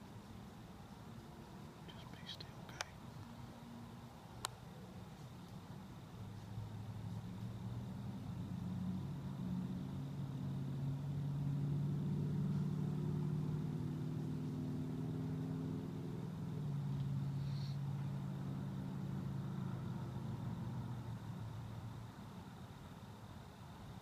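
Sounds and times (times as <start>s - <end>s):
vehicle engine running: 4.9s - 23.1s.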